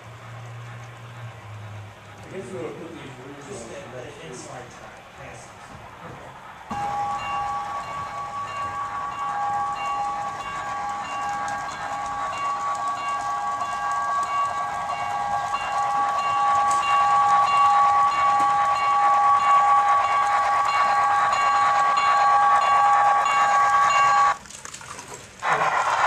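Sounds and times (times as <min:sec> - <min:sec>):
model steam locomotive whistle: 0:06.7 - 0:24.4, 0:25.4 - 0:26.0.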